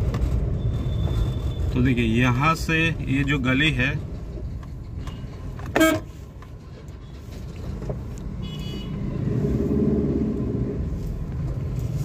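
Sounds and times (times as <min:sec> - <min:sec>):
car engine and road rumble: 0:00.0 - 0:12.0
vehicle horn toot: 0:05.8 - 0:06.1, 0:08.4 - 0:09.0.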